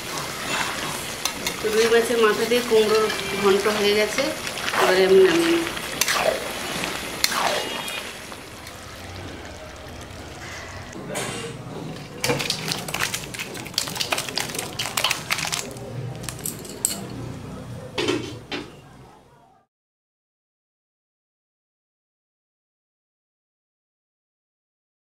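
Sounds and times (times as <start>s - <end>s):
metal spoon scraping a pot: 0.1s - 8.1s.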